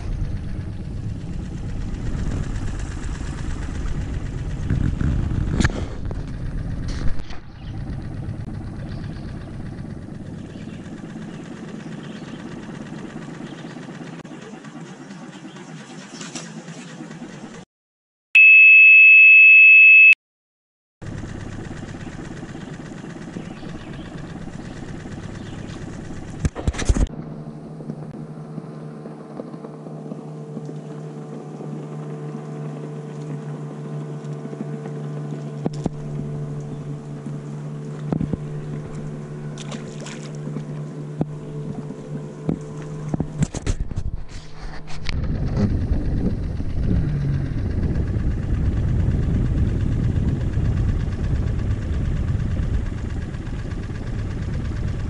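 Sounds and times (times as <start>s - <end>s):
low hum: 0.0s - 17.6s, 21.0s - 55.0s
high-pitched beep: 18.4s - 20.2s.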